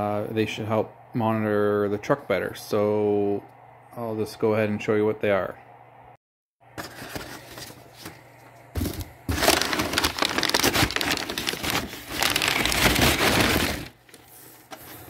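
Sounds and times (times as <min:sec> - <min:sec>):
cardboard box being opened: 0:08.8 - 0:13.9
packing material tearing and crinkling: 0:09.3 - 0:14.1.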